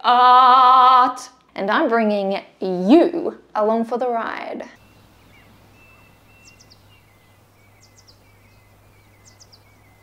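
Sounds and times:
birds chirping: 4.7s - 10.0s
low steady hum: 4.8s - 10.0s.

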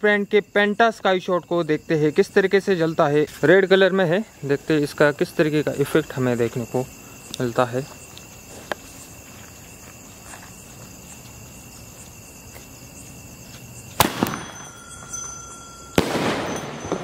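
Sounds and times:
crackling hiss: 0.0s - 17.0s
crickets chirping: 0.0s - 17.0s
firework bangs: 14.0s - 15.1s, 15.9s - 17.0s.

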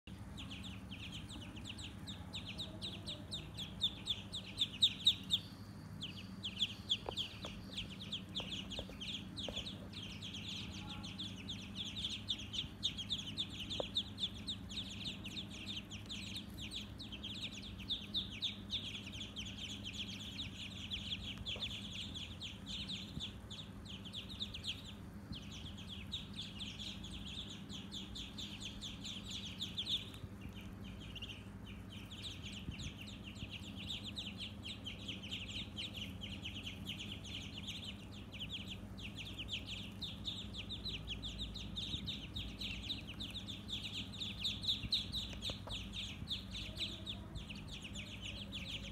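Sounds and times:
ducklings peeping: 0.0s - 48.9s.

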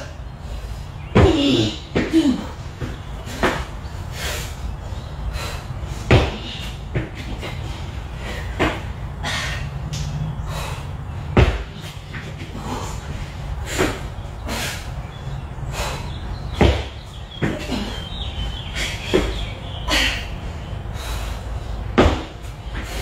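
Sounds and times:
steady low hum: 0.0s - 23.0s
dumbbells thudding on mat: 6.1s - 7.4s, 11.4s - 12.3s, 16.6s - 17.8s, 22.0s - 23.0s.

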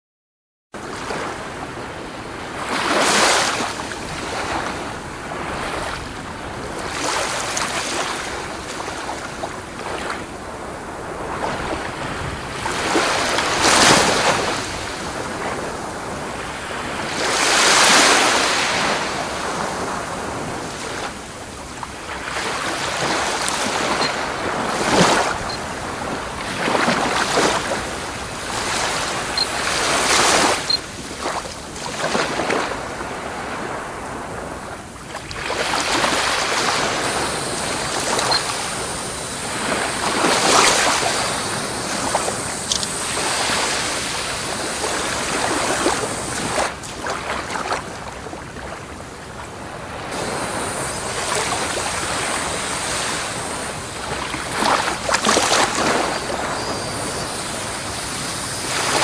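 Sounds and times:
sea waves washing onto shore: 0.8s - 59.0s
wind buffeting microphone: 49.9s - 59.0s.

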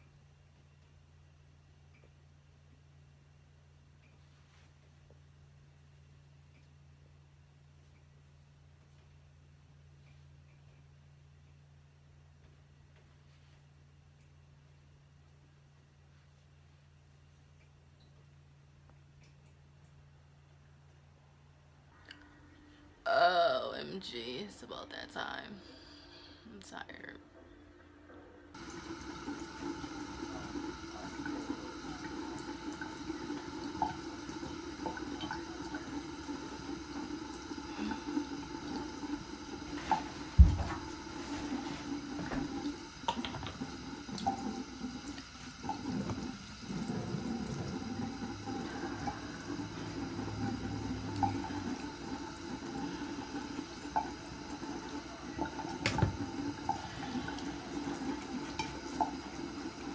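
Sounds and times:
water running: 28.5s - 59.9s.

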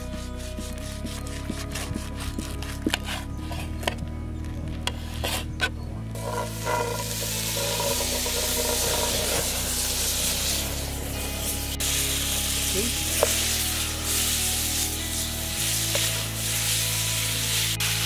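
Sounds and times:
background music of low notes: 0.0s - 18.0s
chicken sizzling in a wok: 6.2s - 18.0s.

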